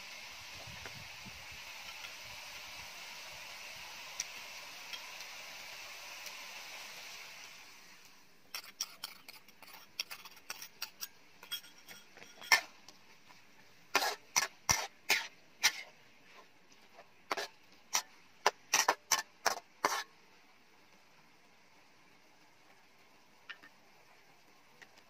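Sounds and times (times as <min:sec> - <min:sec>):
metal spatula scraping a wok: 0:08.5 - 0:12.8, 0:13.9 - 0:20.2.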